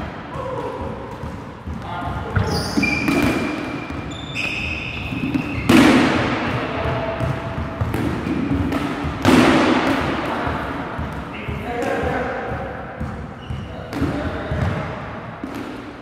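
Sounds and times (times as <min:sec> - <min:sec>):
balls hitting hardwood floor: 0:00.0 - 0:16.0
sneaker squeaks: 0:00.4 - 0:09.1, 0:11.0 - 0:14.8.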